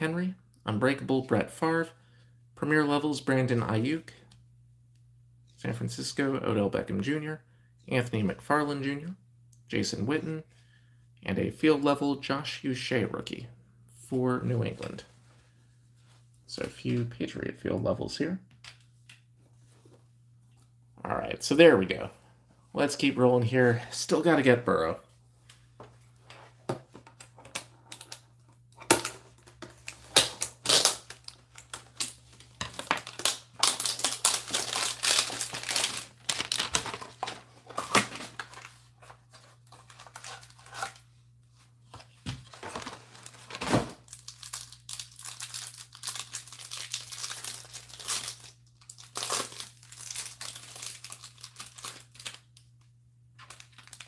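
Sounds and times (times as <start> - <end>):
wrapper crinkling and tearing: 27.6 - 38.8, 42.7 - 52.7, 53.4 - 54.0.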